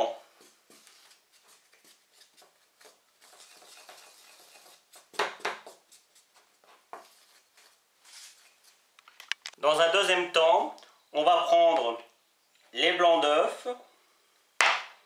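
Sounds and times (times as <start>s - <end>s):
spatula scraping through powder: 0.4s - 8.7s.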